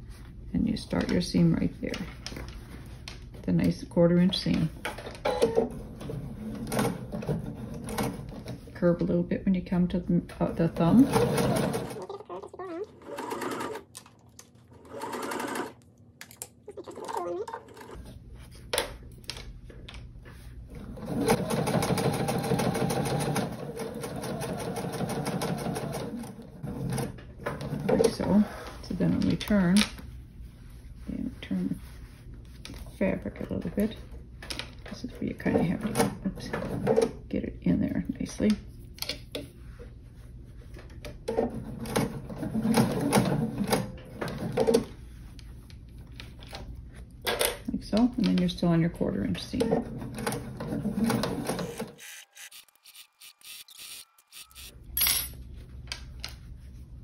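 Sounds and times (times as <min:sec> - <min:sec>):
sewing machine stitching: 0:10.8 - 0:12.0, 0:13.0 - 0:13.8, 0:14.8 - 0:15.8, 0:20.8 - 0:28.2, 0:49.6 - 0:54.7.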